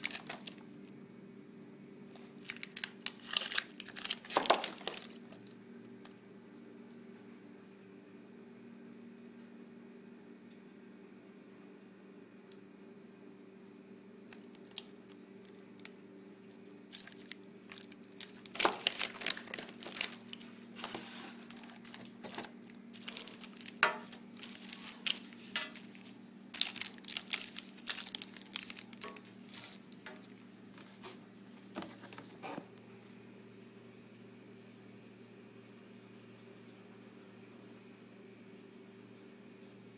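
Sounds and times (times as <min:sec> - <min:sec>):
plastic packaging crinkling: 0:00.0 - 0:00.6, 0:02.1 - 0:05.6, 0:14.3 - 0:15.9, 0:16.9 - 0:31.0.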